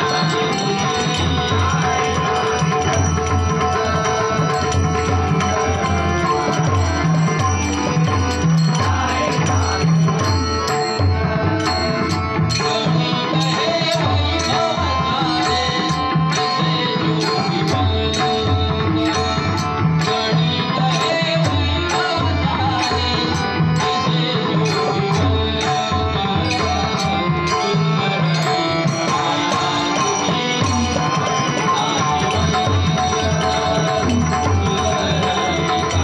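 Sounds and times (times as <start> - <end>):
hand drums beat: 0.0 - 12.6, 28.3 - 36.0
harmonium tones: 0.0 - 36.0.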